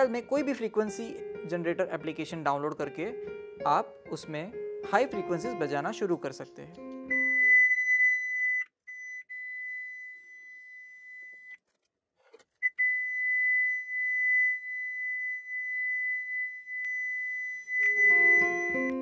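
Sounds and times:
high-pitched test tone: 12.7 - 19.0.

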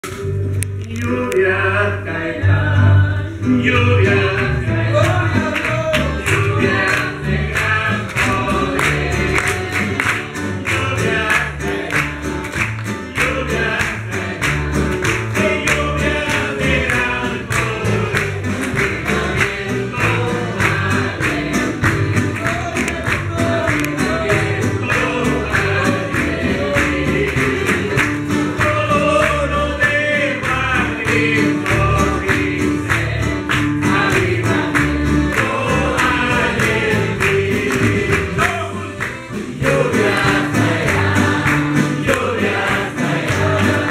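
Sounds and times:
bass line: 0.0 - 43.9
man and woman singing hymn: 0.8 - 43.9
church band drums: 3.6 - 43.9.

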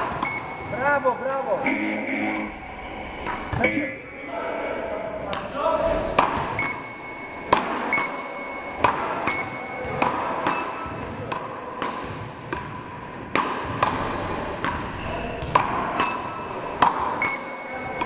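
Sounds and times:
short electronic beeps: 0.2 - 4.0, 6.6 - 9.8, 17.2 - 17.7
paddle rackets smacking ball: 6.2 - 6.5, 8.8 - 16.2, 16.8 - 17.2.

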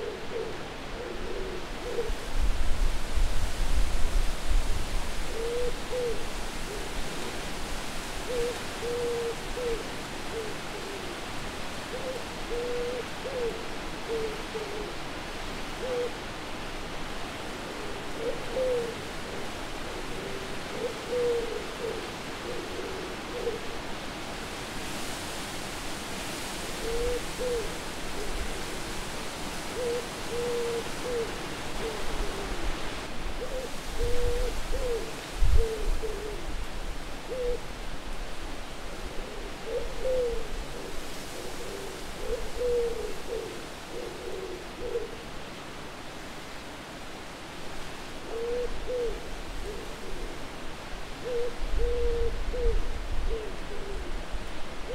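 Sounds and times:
wind hiss: 0.0 - 54.9
owl hooting: 5.3 - 6.8, 8.3 - 11.1, 11.9 - 15.0, 15.8 - 16.2, 18.2 - 19.4, 20.0 - 23.7, 26.8 - 28.4, 29.8 - 32.7, 33.4 - 36.4, 37.3 - 37.6, 39.2 - 45.2, 48.2 - 50.3, 51.2 - 54.2.

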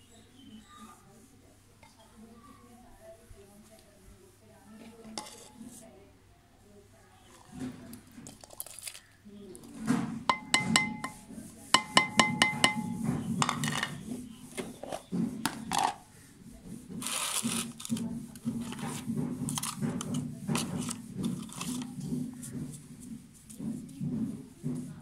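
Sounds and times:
soft knocks and rustles: 9.6 - 25.0
china plate clinking on bowl: 10.3 - 11.2, 11.8 - 14.0.

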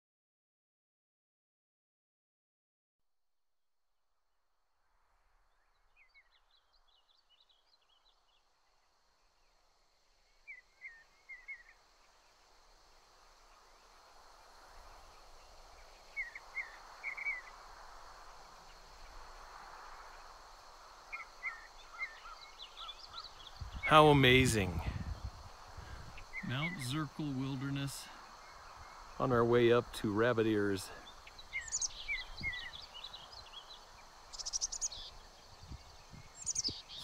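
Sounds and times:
steady outdoor hiss: 4.2 - 37.0
small birds chirping: 13.3 - 17.6, 21.1 - 37.0.

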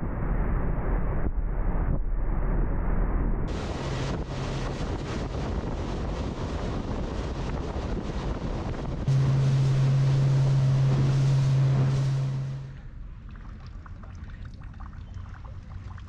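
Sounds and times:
low boat engine drone: 3.1 - 16.0
faint water sounds: 3.5 - 16.0
wind and water rushing: 3.5 - 16.0.

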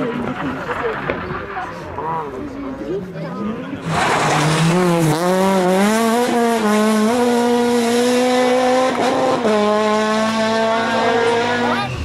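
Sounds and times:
rally car engine revving high: 3.8 - 12.0.

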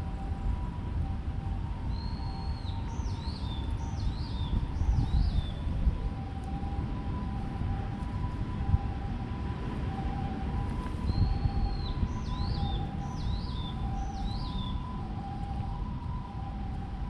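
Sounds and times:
constant low rumble: 0.0 - 17.0
two-tone emergency siren: 0.0 - 17.0.

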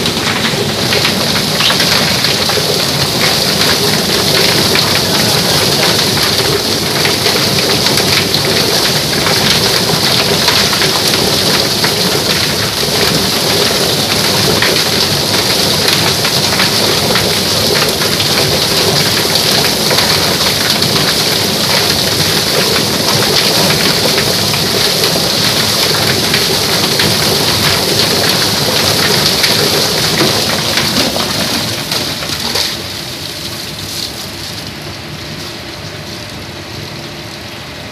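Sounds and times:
poultry plucker drum spinning: 0.0 - 33.5.

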